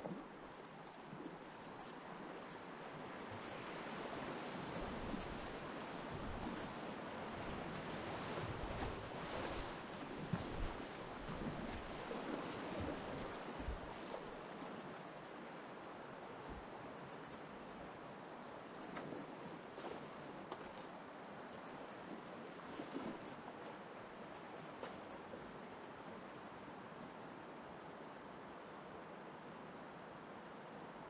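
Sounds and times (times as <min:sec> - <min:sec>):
water splashing against kayak: 0:03.0 - 0:14.5.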